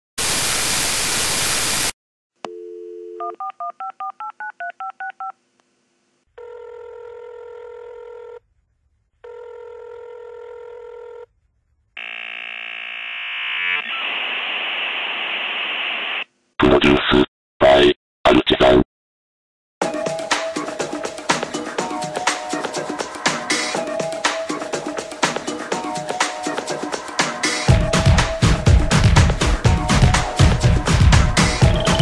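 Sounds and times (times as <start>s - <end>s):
loud static hiss: 0.2s - 1.9s, 13.2s - 17.3s
dial tone: 2.5s - 3.9s, 6.4s - 8.4s, 9.2s - 11.3s, 31.6s - 32.0s
phone ringing: 6.4s - 8.4s, 9.2s - 11.3s, 31.6s - 32.0s
touch-tone beeps: 31.6s - 32.0s.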